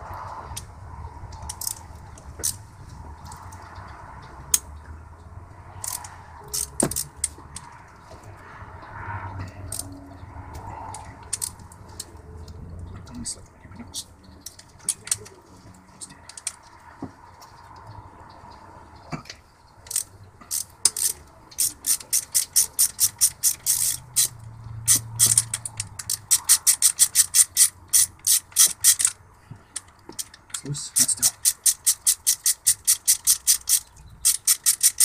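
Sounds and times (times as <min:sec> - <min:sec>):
ratchet wrench clicking: 0:01.4 - 0:02.6, 0:05.8 - 0:07.8, 0:09.7 - 0:10.0, 0:10.9 - 0:11.7, 0:16.3 - 0:16.7, 0:19.9 - 0:35.0.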